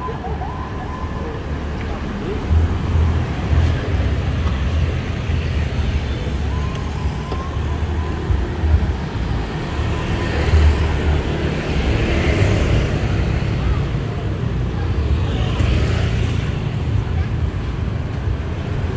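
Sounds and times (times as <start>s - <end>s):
road traffic rumble: 0.0s - 18.9s.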